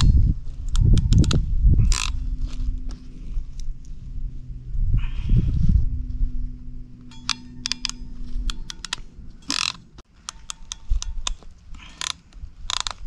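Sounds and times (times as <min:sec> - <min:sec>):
ratcheting crimper clicks: 0:00.0 - 0:02.2, 0:07.1 - 0:13.0.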